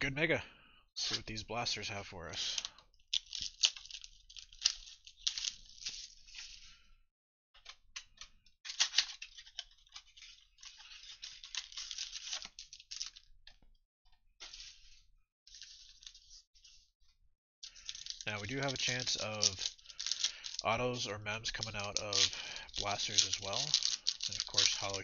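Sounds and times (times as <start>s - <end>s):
foil packs crinkling: 2.5s - 6.8s, 8.7s - 13.3s, 17.6s - 25.0s.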